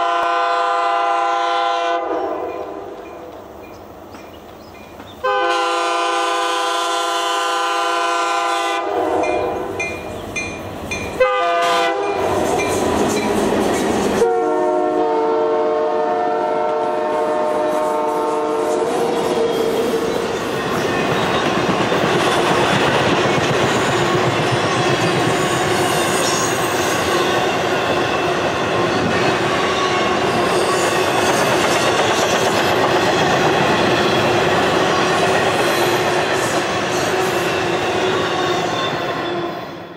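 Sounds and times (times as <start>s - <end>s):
train horn: 0.0s - 3.1s, 5.2s - 9.9s, 11.2s - 12.4s, 14.1s - 20.1s
passenger train rushing past: 0.0s - 39.9s.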